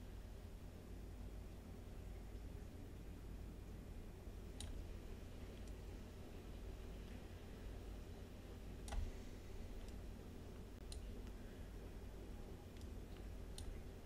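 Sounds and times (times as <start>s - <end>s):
steady low hum: 0.0s - 14.0s
computer mouse clicking: 4.6s - 4.8s, 8.8s - 9.2s, 9.8s - 10.0s, 10.8s - 11.4s, 12.7s - 13.8s.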